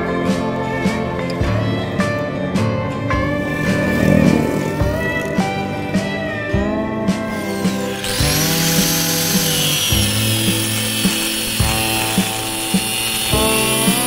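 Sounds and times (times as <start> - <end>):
background music with steady beat: 0.0 - 14.0
power tool whining on metal: 3.2 - 6.1, 7.1 - 14.0.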